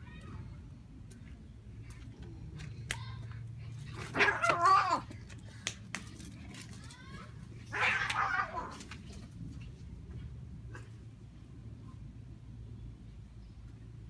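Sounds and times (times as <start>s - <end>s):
cat yowling: 4.2s - 5.1s, 7.7s - 8.8s.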